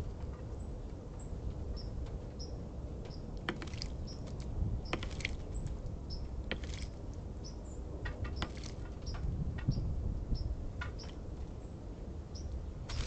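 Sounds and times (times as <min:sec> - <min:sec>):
low steady rumble: 0:00.0 - 0:13.0
bird splashing in water: 0:03.5 - 0:05.5, 0:06.5 - 0:07.0, 0:08.4 - 0:08.9.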